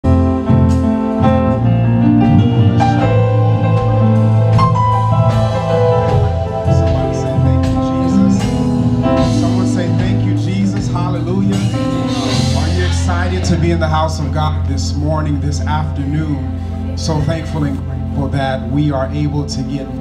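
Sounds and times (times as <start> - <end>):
band playing instrumental: 0.0 - 20.0
bass: 0.0 - 20.0
keyboard chords: 0.0 - 20.0
drums and cymbal strokes: 2.4 - 13.7.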